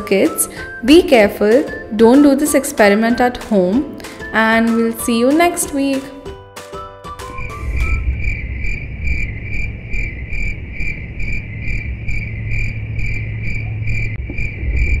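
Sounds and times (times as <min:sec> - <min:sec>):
low steady rumble: 0:07.2 - 0:15.0
insects chirping: 0:07.3 - 0:15.0.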